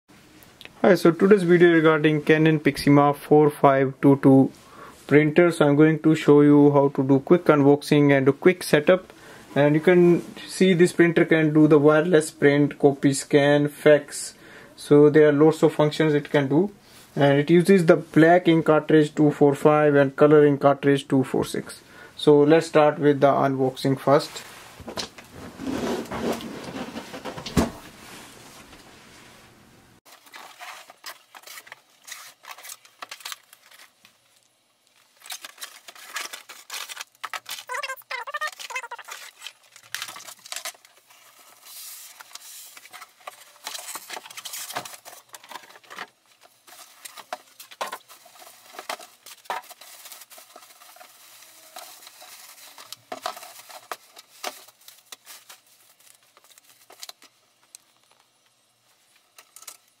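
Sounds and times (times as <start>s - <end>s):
foam inserts rubbing: 25.3s - 28.4s
plastic bag crinkling: 30.1s - 58.4s.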